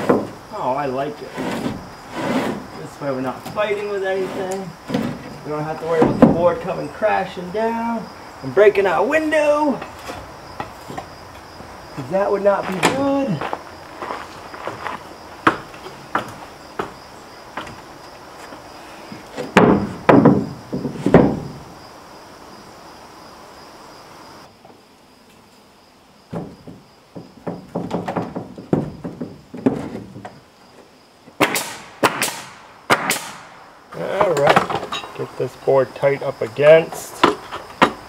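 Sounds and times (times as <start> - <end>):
wooden boards knocked and tapped: 0.0 - 0.4, 3.3 - 6.8, 9.7 - 11.1, 14.7 - 17.9, 19.1 - 21.6, 26.3 - 33.3, 34.2 - 35.0, 36.9 - 38.0
pneumatic nail gun shots: 31.4 - 33.6.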